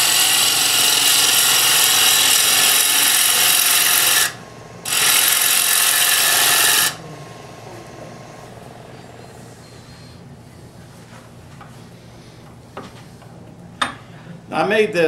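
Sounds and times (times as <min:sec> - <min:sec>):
gouge cutting on wood lathe: 0:00.0 - 0:09.2
lathe running quietly: 0:00.0 - 0:14.4.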